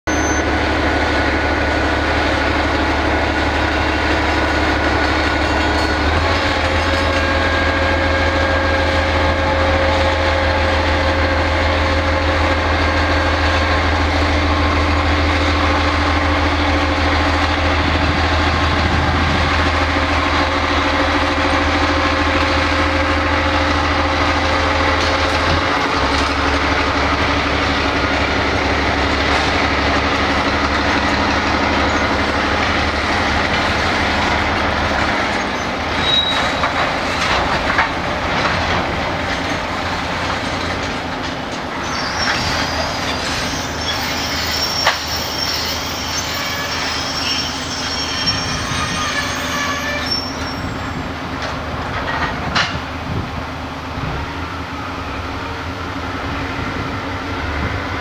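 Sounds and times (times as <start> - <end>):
diesel locomotive engine: 0.0 - 58.0.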